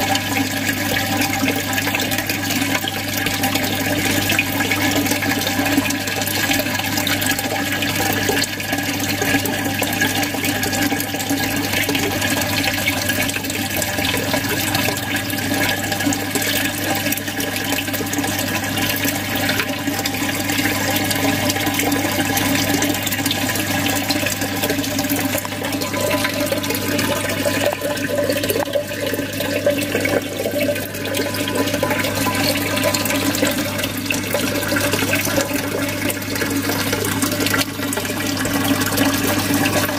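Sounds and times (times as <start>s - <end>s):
water splashing and gurgling: 0.0s - 39.9s.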